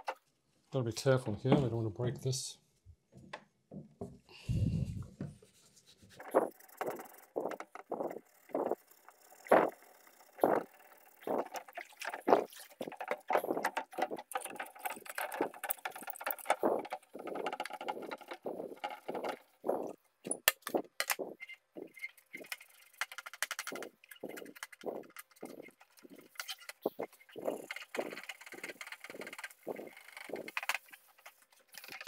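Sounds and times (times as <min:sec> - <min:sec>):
sponge scrubbing plastic: 0:04.8 - 0:08.8, 0:10.4 - 0:20.0
water splashing in sink: 0:10.4 - 0:19.9.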